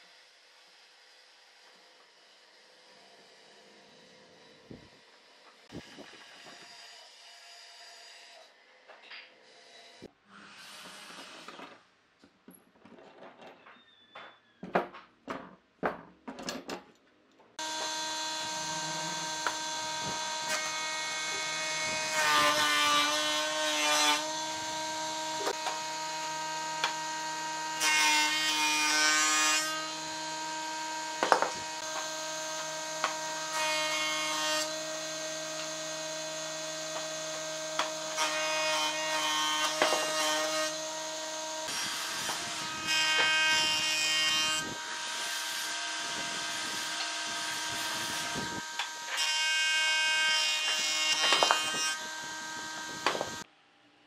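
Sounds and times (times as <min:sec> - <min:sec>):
planer motor whine: 0:17.6 - 0:22.6, 0:51.1 - 0:53.4
planer knives cutting wood: 0:17.6 - 0:53.4.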